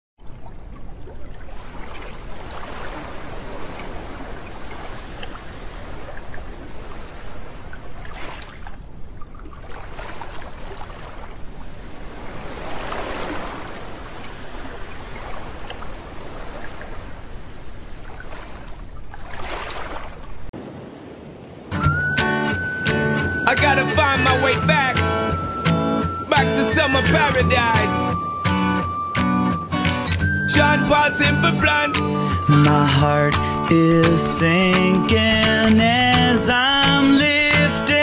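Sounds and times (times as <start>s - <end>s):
small waves breaking on sand: 0.4s - 21.8s.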